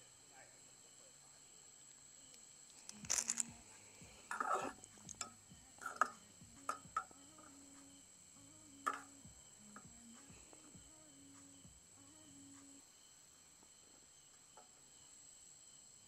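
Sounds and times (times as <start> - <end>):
soft background music: 2.9 - 12.9.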